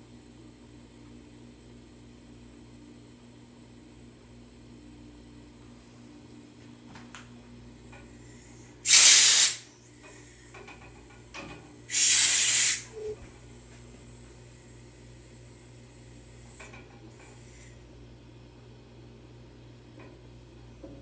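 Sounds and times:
compressed air hissing: 8.8s - 9.7s, 11.9s - 13.1s.

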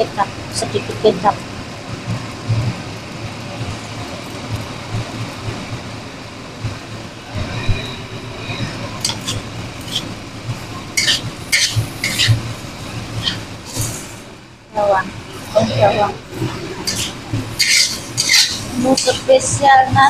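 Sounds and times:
metal spatula scraping a wok: 9.0s - 10.1s, 11.0s - 12.4s, 13.1s - 14.1s, 16.8s - 19.3s.

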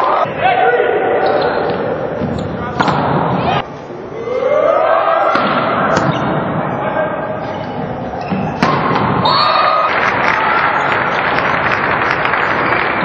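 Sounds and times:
players and crowd shouting: 0.0s - 7.8s, 8.5s - 11.2s
volleyball hits and thuds: 1.7s - 3.4s, 8.3s - 9.3s.

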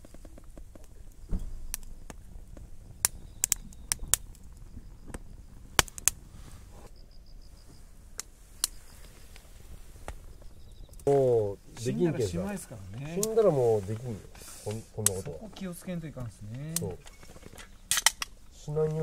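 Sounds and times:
firewood crackling and popping: 0.0s - 19.0s
low steady hiss: 0.0s - 19.0s.

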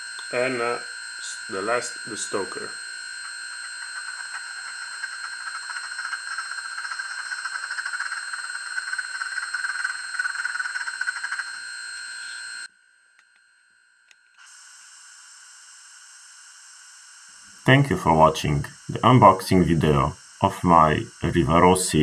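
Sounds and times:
quieter steady hiss: 14.3s - 22.0s
model locomotive fluttering hiss: 14.4s - 17.6s.

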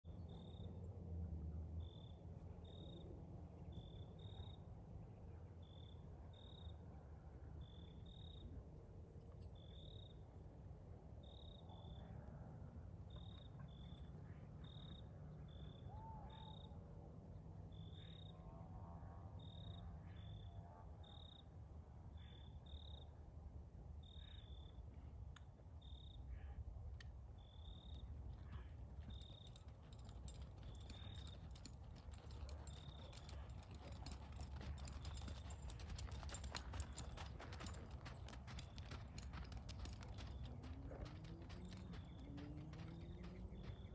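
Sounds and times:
cricket chirping: 0.3s - 0.7s, 1.8s - 3.1s, 3.7s - 4.7s, 5.6s - 6.8s, 7.6s - 8.5s, 9.6s - 10.2s, 11.2s - 12.0s, 13.1s - 14.0s, 14.6s - 15.8s, 17.7s - 18.4s, 19.4s - 21.5s, 22.2s - 23.1s, 24.0s - 24.8s, 25.8s - 26.2s, 27.4s - 28.1s, 29.0s - 40.5s
faint low rumble: 23.4s - 43.9s.

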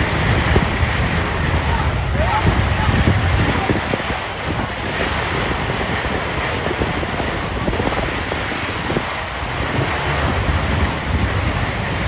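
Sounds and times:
crowd noise: 0.0s - 12.0s
wind buffeting microphone: 0.0s - 12.0s.

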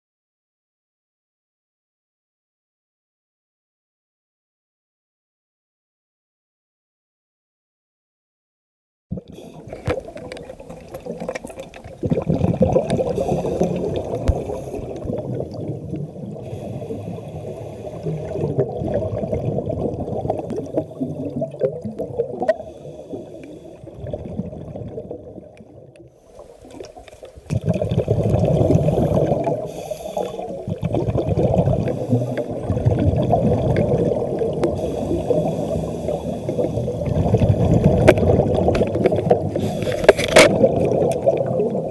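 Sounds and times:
underwater bubbles gurgling: 9.1s - 41.9s.

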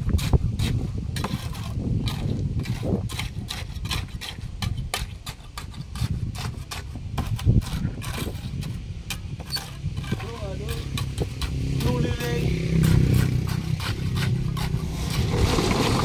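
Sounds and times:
steady low rumble: 6.0s - 16.0s.

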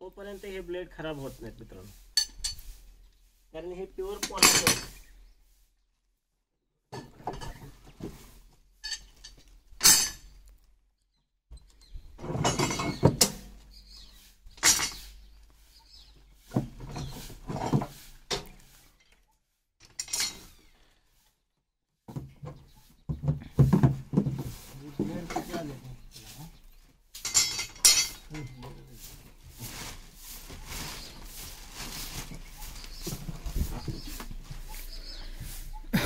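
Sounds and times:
metal parts clinking: 19.8s - 20.5s, 27.2s - 28.4s
rustling: 22.4s - 35.9s.

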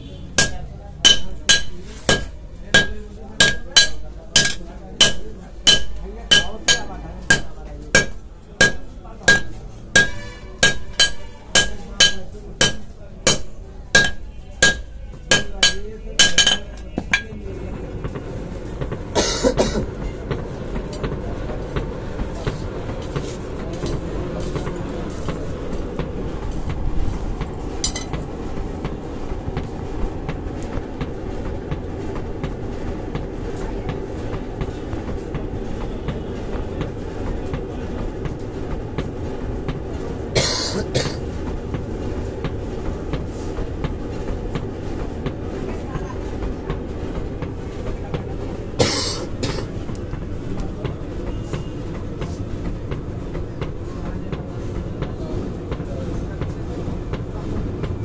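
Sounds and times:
forge blower rushing: 0.0s - 58.0s
hammer striking steel on anvil: 0.4s - 17.4s, 27.8s - 28.2s
metal clank: 27.8s - 28.2s.

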